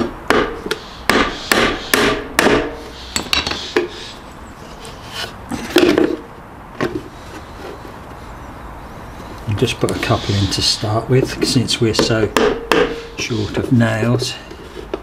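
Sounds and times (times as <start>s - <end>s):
hammer driving nail into wood: 0.0s - 3.6s, 12.0s - 13.1s.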